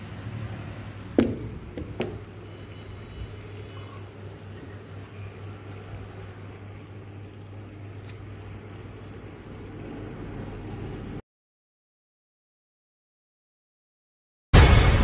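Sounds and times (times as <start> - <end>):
water heater humming: 0.0 - 11.2
sharp knocks: 1.2 - 2.3.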